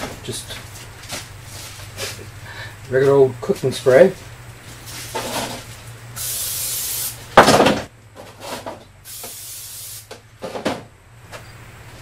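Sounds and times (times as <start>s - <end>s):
aerosol spray hissing: 6.2s - 7.2s, 9.1s - 10.1s.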